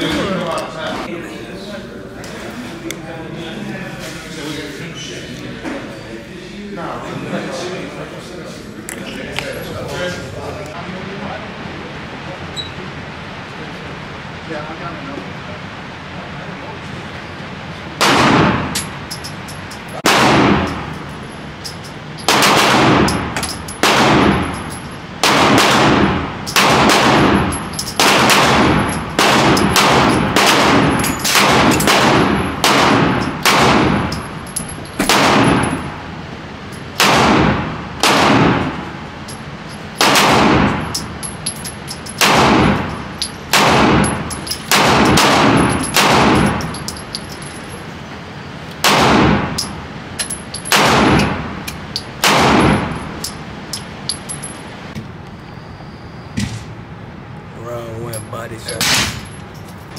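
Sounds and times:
gunshots with echo: 0:18.0 - 0:18.8, 0:20.0 - 0:20.9, 0:22.3 - 0:24.5, 0:25.2 - 0:34.1, 0:35.0 - 0:35.9, 0:40.0 - 0:40.9, 0:43.5 - 0:46.7, 0:52.2 - 0:53.0, 0:58.8 - 0:59.2.

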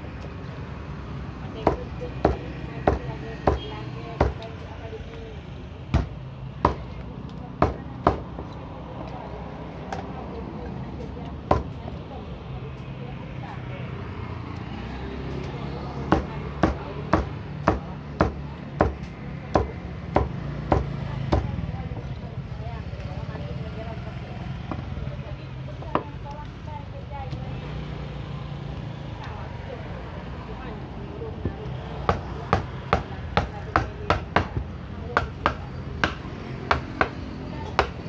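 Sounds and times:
knife chopping on wooden block: 0:07.6 - 0:08.4, 0:16.1 - 0:21.5.

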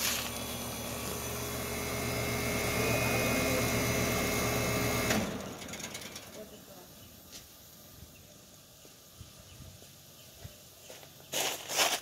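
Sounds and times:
heat pump shutting off clunk: 0:00.0 - 0:06.4
heat pump humming: 0:00.0 - 0:07.2.

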